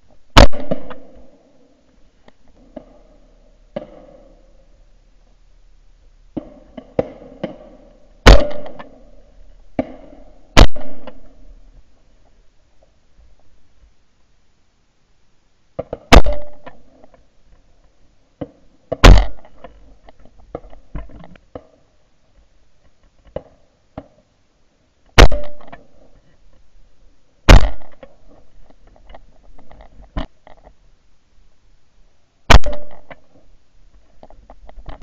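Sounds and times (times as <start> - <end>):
shotgun shots: 0.4 - 1.2, 6.4 - 9.0, 9.8 - 11.4, 16.1 - 16.8, 19.0 - 19.6, 25.2 - 25.8, 27.5 - 28.1, 32.5 - 33.2
faint sharp cracks: 0.4 - 4.5, 6.3 - 9.2, 9.8 - 11.5, 15.8 - 21.9, 25.1 - 26.6, 27.5 - 30.8, 32.5 - 35.0.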